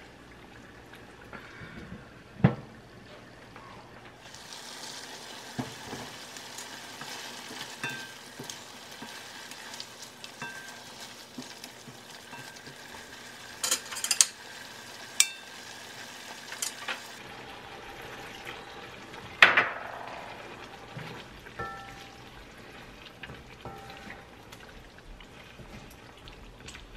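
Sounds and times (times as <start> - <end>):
food sizzling in a wok: 4.2 - 26.9
spatula knock on pan: 21.6 - 22.1.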